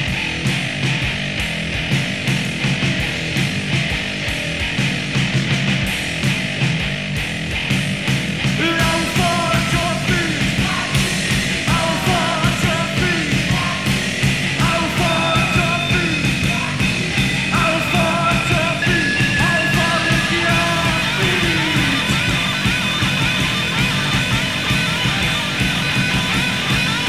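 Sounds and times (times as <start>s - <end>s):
noise rock band playing: 0.0s - 27.0s
yelled vocals: 8.0s - 27.0s.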